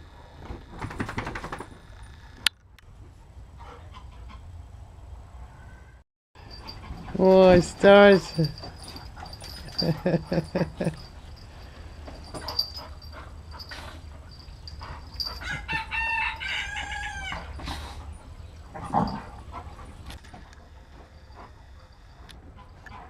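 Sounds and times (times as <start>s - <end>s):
rooster crowing: 15.3s - 17.6s.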